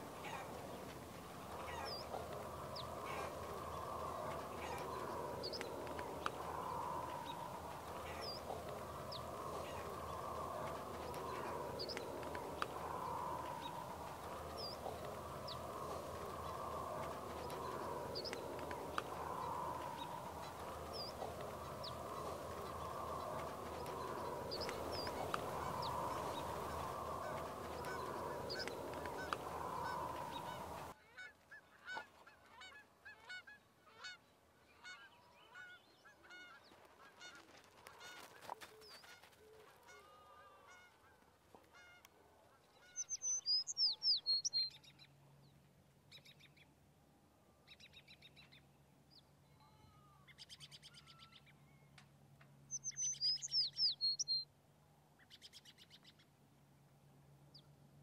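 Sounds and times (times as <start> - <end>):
birds calling: 0.0 - 30.9, 52.7 - 54.4
low steady hum: 0.0 - 31.0
rapid bird trills: 52.7 - 54.4.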